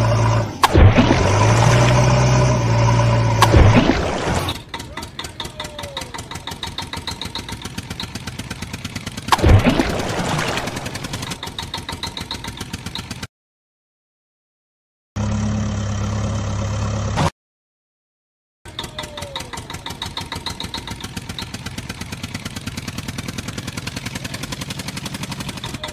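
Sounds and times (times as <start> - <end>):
engine putter: 0.0 - 13.3, 18.7 - 25.9
deep smooth engine hum: 15.2 - 17.2.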